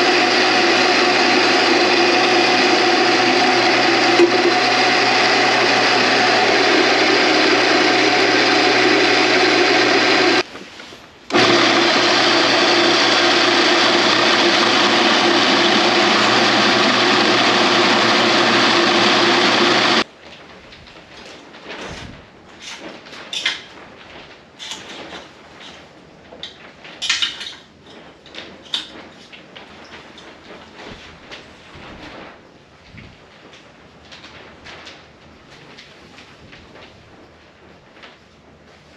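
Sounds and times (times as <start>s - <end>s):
drill press drilling steel: 0.0s - 10.4s, 11.3s - 20.0s
metal parts clicking and knocking: 27.0s - 27.6s.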